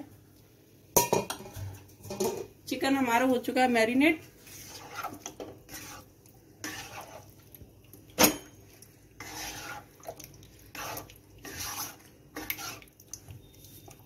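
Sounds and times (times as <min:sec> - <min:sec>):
spatula scraping a pan: 0:04.4 - 0:07.4, 0:09.2 - 0:12.9.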